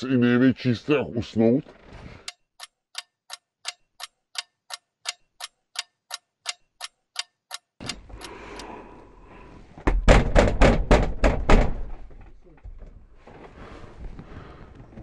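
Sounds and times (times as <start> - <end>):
outdoor background noise: 0.0 - 15.0
clock ticking: 2.2 - 8.7
wheelie bin thumps and bangs: 9.8 - 12.1.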